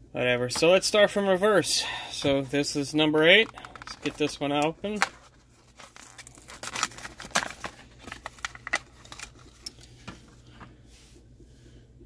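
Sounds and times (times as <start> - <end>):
plastic blister pack crackling: 2.1 - 10.4.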